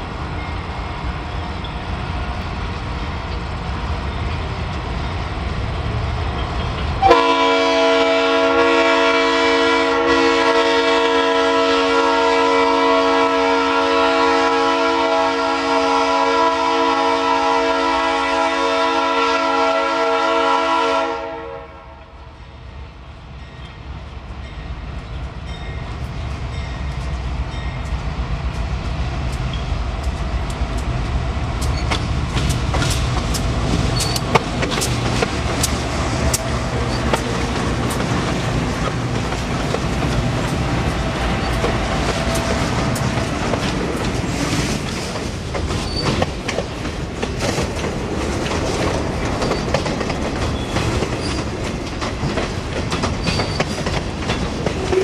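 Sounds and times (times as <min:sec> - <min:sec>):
diesel locomotive engines: 0:00.0 - 0:55.0
locomotive air horn blast: 0:07.0 - 0:22.2
wheels clicking over rail joints: 0:26.9 - 0:55.0.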